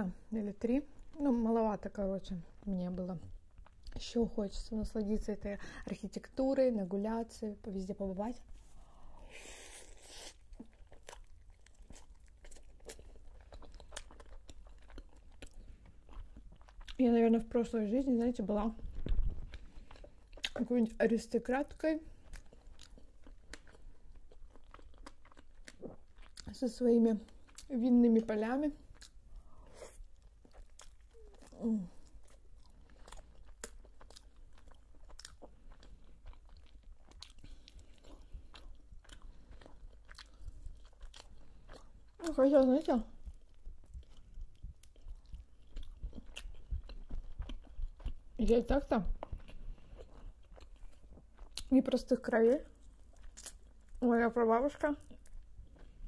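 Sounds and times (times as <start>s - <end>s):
person chewing food: 8.4s - 17.0s, 18.8s - 20.6s, 22.1s - 26.5s, 27.2s - 27.7s, 28.8s - 51.7s, 52.7s - 54.0s, 55.0s - 56.0s.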